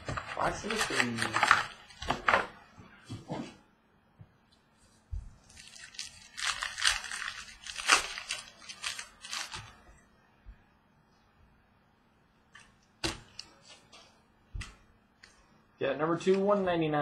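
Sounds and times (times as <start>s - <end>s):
foil wrapper crinkling and tearing: 0.2s - 2.0s, 5.5s - 9.8s.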